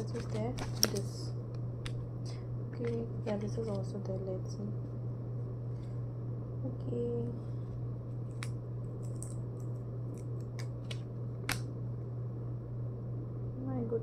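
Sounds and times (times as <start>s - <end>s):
steady low hum: 0.0s - 14.0s
cardboard clicks and snaps: 8.3s - 11.7s.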